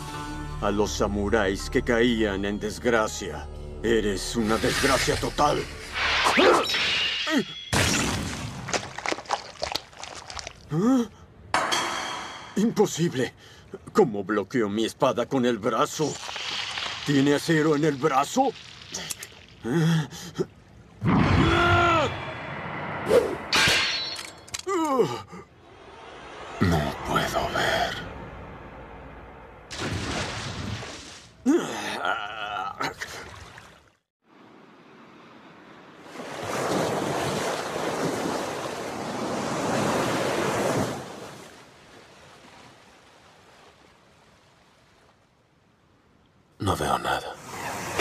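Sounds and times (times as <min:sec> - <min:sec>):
ocean waves washing: 0:15.7 - 0:21.0, 0:33.0 - 0:45.2.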